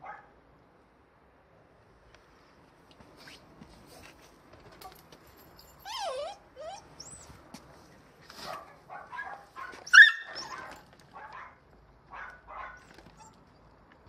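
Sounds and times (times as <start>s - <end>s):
dog barking and yelping: 5.9s - 7.3s, 8.4s - 13.4s.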